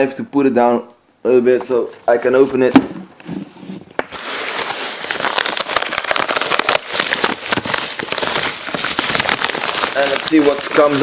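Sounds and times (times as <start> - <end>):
paper mailer being torn open: 4.0 - 11.0.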